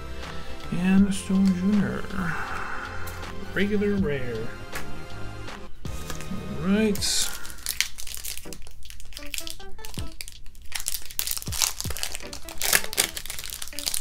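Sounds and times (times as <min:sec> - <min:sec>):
foil wrapper crinkling: 0:06.9 - 0:14.0.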